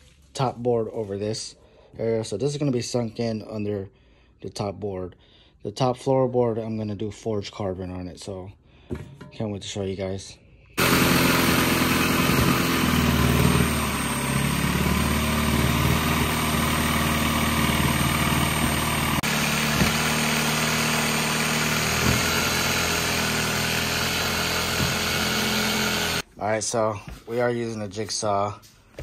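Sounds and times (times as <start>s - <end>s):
jigsaw cutting wood board: 10.8s - 26.2s.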